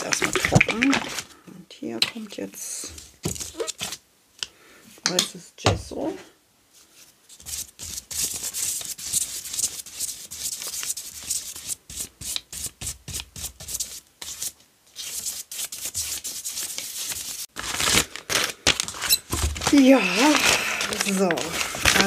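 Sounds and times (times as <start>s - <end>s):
brush rubbing on paper: 7.0s - 17.5s.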